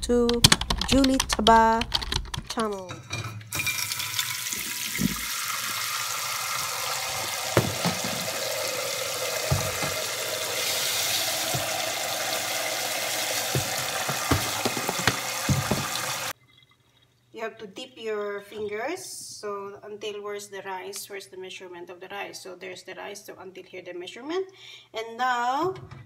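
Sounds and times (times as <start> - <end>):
tap water running into saucepan: 3.5 - 16.4
short knocks: 13.1 - 16.3.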